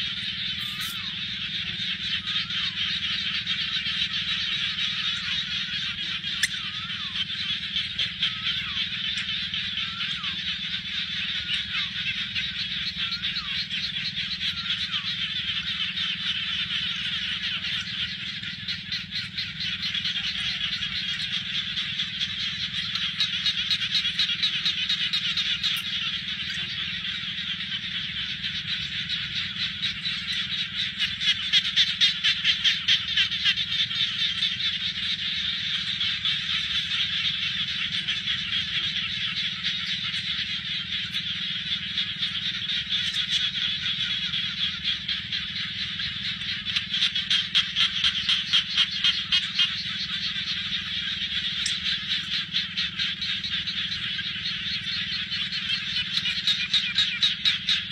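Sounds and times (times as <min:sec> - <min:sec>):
chorus of frogs calling: 0:00.0 - 0:57.9.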